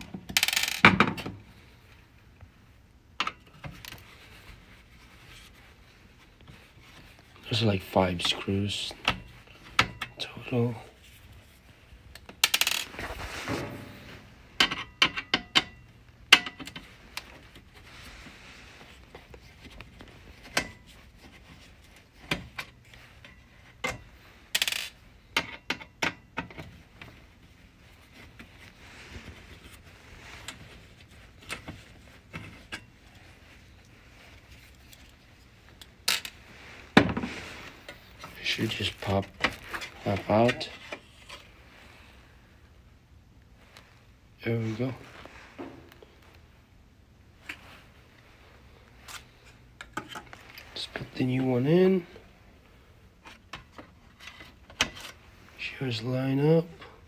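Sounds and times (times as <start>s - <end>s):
screws set down on metal: 0.3s - 1.2s.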